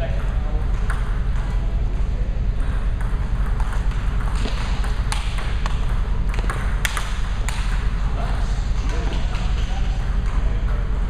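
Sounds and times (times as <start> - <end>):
low steady rumble: 0.0 - 11.0
table tennis balls clicking: 2.6 - 8.0.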